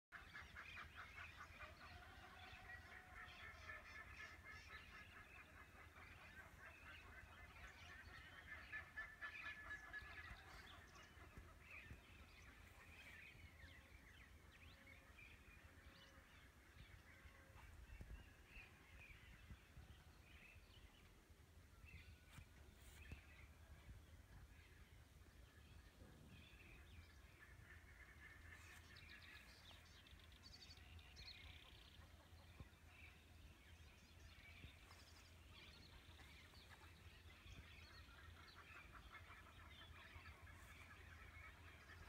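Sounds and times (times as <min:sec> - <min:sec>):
faint birds calling: 0:00.2 - 0:42.0.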